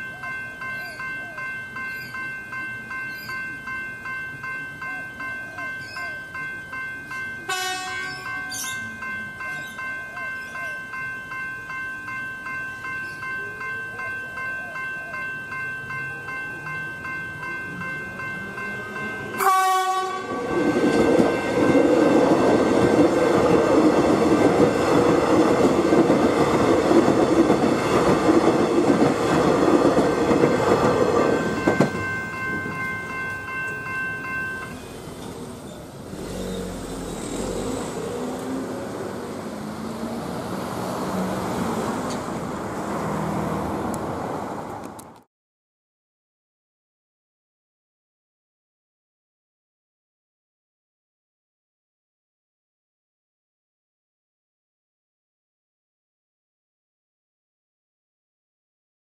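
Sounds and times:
level crossing bells ringing: 0.0s - 42.4s
train horn: 7.5s - 8.6s, 19.4s - 21.0s
train wheels clattering over rails: 20.6s - 32.8s.

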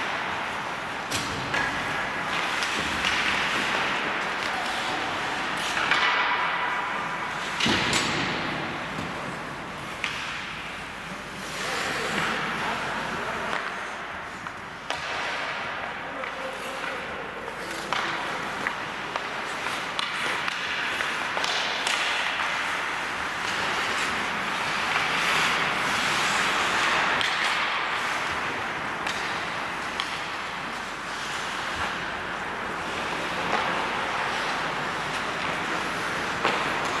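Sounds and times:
skates scraping ice: 0.0s - 37.0s
sticks and puck clacking: 0.0s - 37.0s.

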